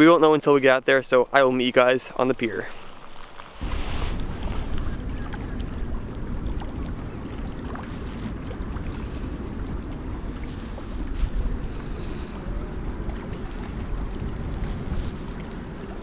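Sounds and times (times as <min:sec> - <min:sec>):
waves washing against a pier: 0:02.4 - 0:16.0
wind blowing over microphone: 0:03.6 - 0:16.0.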